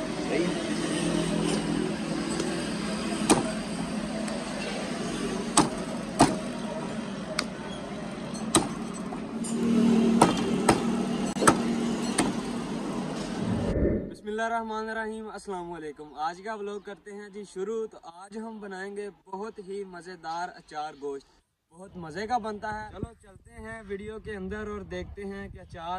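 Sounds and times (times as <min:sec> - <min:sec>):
cleaver chopping on wooden block: 0:03.2 - 0:03.6, 0:05.6 - 0:06.5, 0:08.5 - 0:08.8, 0:10.2 - 0:12.4
steady low hum: 0:13.2 - 0:14.4.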